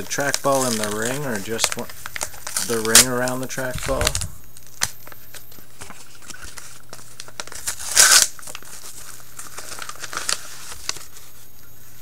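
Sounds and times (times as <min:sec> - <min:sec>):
paper ripping: 0:00.0 - 0:04.3, 0:05.8 - 0:11.1
paper envelope crinkling: 0:00.0 - 0:12.0.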